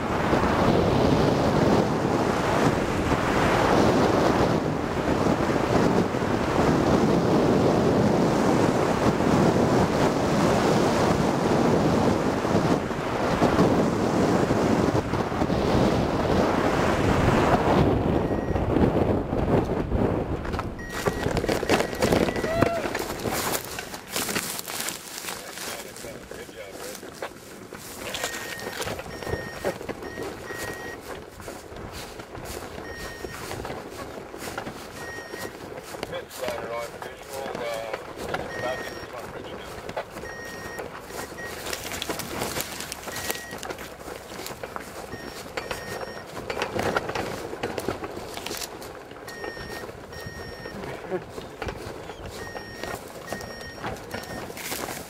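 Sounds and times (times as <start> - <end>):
wind rushing over microphone: 0.0 - 55.0
short electronic beeps: 18.2 - 18.7, 20.8 - 22.7, 28.0 - 31.0, 32.8 - 33.5, 35.0 - 35.5, 38.4 - 39.2, 40.2 - 41.8, 43.0 - 43.7, 45.1 - 46.3, 49.3 - 50.9, 52.1 - 54.7
rustling through tall grass: 20.6 - 55.0.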